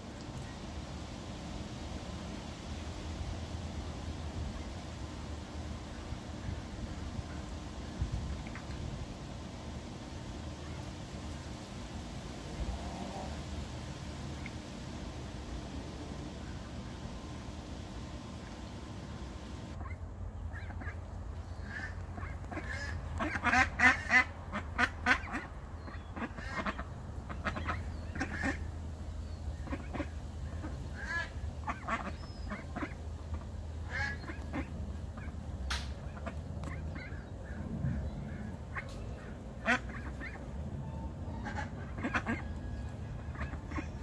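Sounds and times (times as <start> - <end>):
ducks quacking: 19.2 - 28.8, 29.5 - 44.0.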